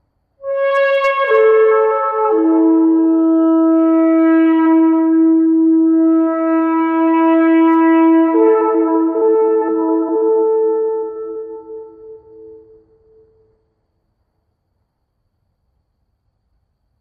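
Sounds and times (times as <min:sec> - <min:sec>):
shofar blast: 0:00.4 - 0:13.4.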